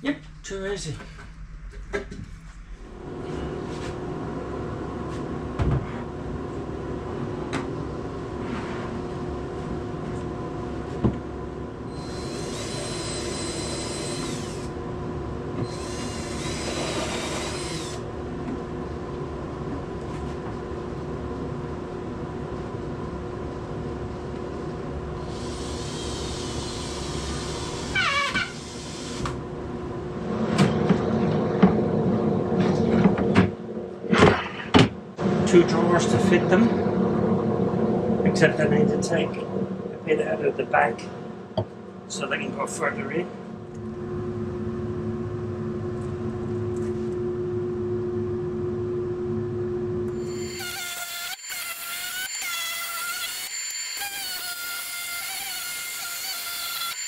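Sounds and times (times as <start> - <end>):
steady hum: 0.0 - 52.3
cordless drill driving screws: 12.0 - 14.7, 15.7 - 18.0, 50.3 - 57.0.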